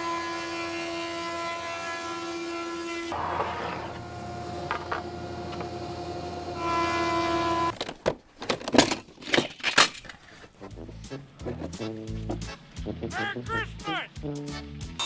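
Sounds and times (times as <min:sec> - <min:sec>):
thickness planer whining: 0:00.0 - 0:07.7.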